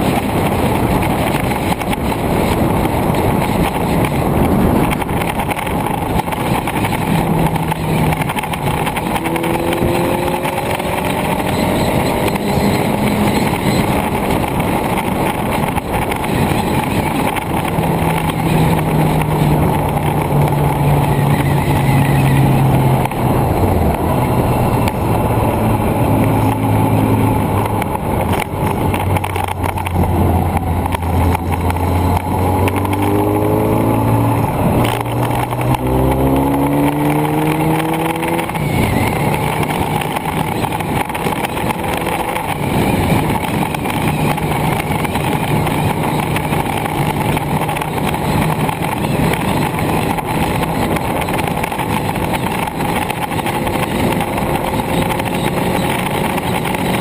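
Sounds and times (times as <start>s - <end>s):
car engine changing gears: 0.0s - 57.0s
road rush: 0.0s - 57.0s
wind: 0.0s - 57.0s.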